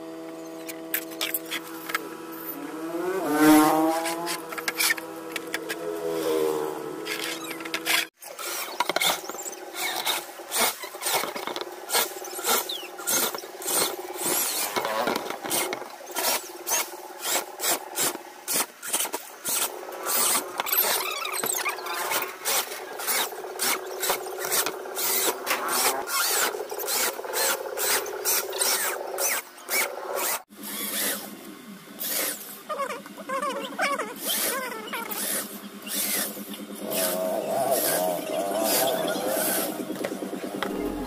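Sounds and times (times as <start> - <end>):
steady tones: 40.5 - 41.0.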